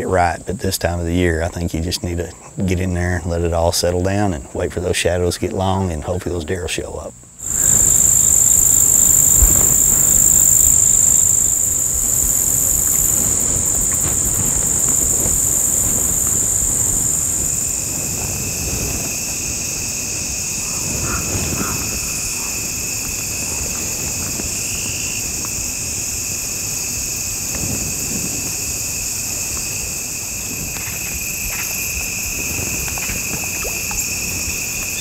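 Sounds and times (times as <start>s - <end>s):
high-pitched insect chorus: 7.4s - 35.0s
lower-pitched insect buzz: 7.4s - 35.0s.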